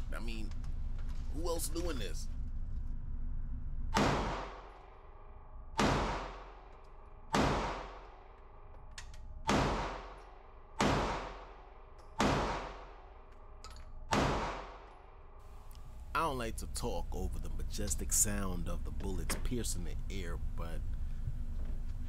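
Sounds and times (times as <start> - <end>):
pistol shots echoing indoors: 3.9 - 8.8, 9.4 - 15.4.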